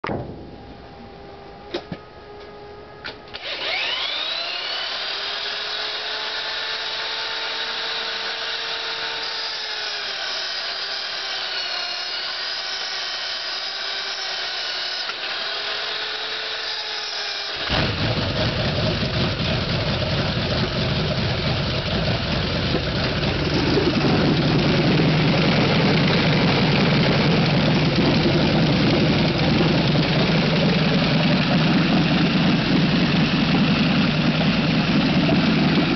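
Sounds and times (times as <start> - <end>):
electric drill whining: 3.0 - 18.1, 19.9 - 35.9
radial aircraft engine running: 17.6 - 35.9.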